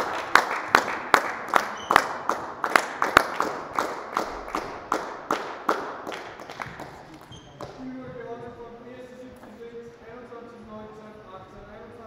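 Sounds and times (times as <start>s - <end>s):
rhythmic hand clapping: 0.0s - 7.9s.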